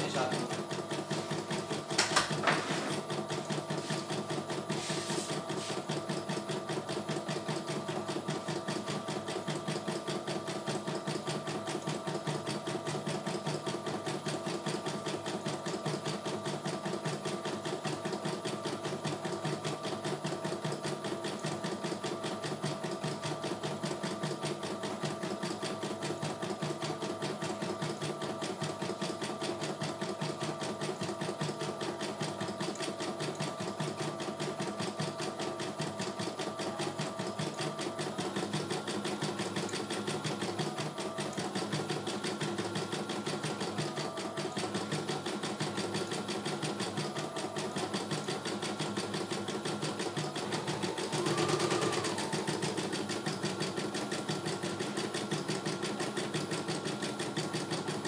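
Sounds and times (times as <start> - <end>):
embroidery machine stitching: 0.0 - 58.0
machine whine rising and falling: 50.4 - 52.8.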